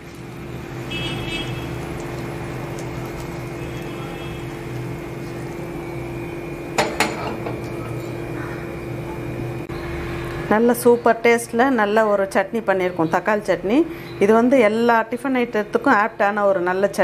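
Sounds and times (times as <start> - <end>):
steady hum: 0.0 - 17.0
kitchenware knocks: 6.8 - 7.6.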